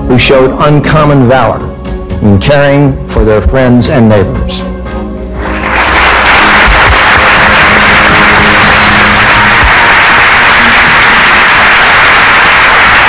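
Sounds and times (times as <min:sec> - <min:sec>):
large crowd applauding: 0:05.4 - 0:13.0.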